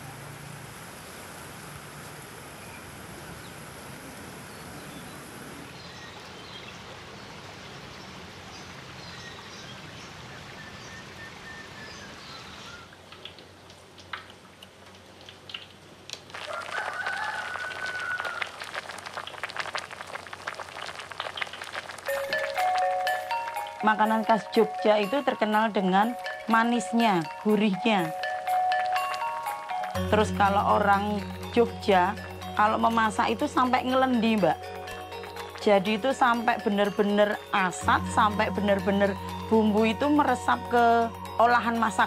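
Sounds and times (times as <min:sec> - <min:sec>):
pot bubbling and crackling: 0:13.0 - 0:23.6
rooster crowing: 0:16.4 - 0:18.6.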